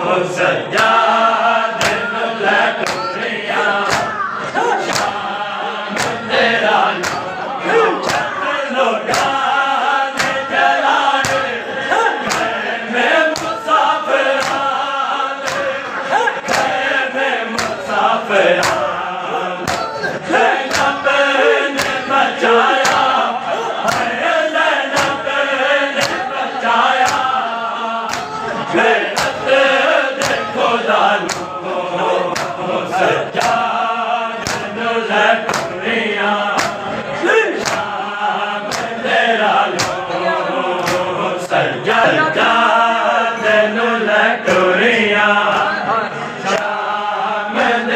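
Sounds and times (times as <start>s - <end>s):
men chanting in unison: 0.0s - 47.9s
hands striking chests: 3.8s - 5.2s, 7.0s - 8.4s, 9.1s - 9.4s, 10.2s - 10.5s, 11.2s - 11.5s, 17.6s - 17.9s, 19.6s - 21.0s, 22.8s - 23.2s, 26.0s - 26.3s, 28.1s - 29.4s, 30.2s - 30.6s, 31.2s - 31.5s, 34.4s - 34.7s, 35.5s - 35.8s, 36.6s - 36.8s, 37.6s - 37.9s.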